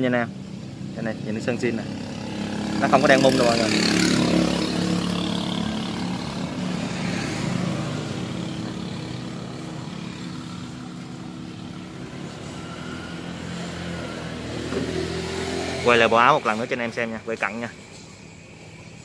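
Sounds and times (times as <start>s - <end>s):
motorcycle engine idling: 0.3s - 15.0s.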